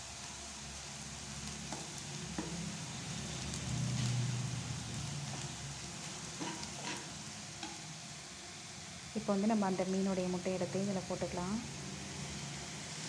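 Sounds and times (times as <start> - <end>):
onions sizzling in oil: 0.0 - 13.0
steel spoon scraping pan: 6.0 - 7.8.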